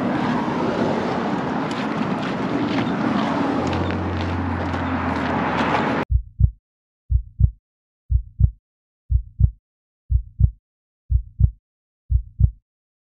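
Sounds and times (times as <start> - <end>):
heartbeat thumps: 6.1 - 12.6.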